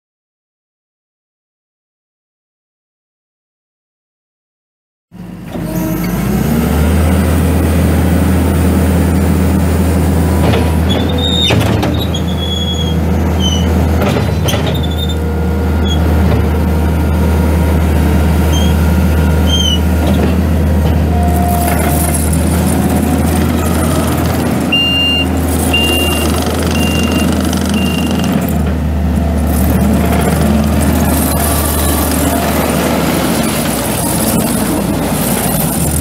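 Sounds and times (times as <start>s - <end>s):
diesel engine running: 5.2s - 36.0s
short high squeaks: 5.5s - 6.3s, 10.8s - 15.2s, 18.5s - 18.8s, 19.4s - 19.9s, 21.1s - 28.6s, 29.6s - 36.0s
backup alarm beeping: 23.5s - 28.4s.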